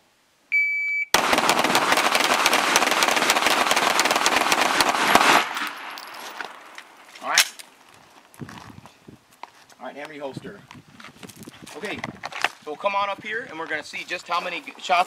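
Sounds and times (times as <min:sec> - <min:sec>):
shot timer beep: 0:00.5 - 0:01.2
rapid overlapping gunshots: 0:01.2 - 0:06.7.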